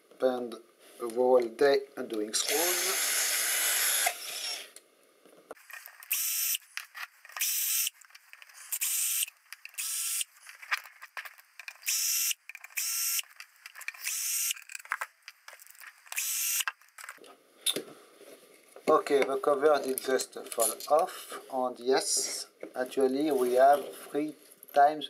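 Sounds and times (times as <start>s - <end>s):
power screwdriver whirring: 2.4s - 4.7s, 6.1s - 6.6s, 7.4s - 7.9s, 8.7s - 10.3s, 11.8s - 13.2s, 14.0s - 14.7s, 16.1s - 16.7s.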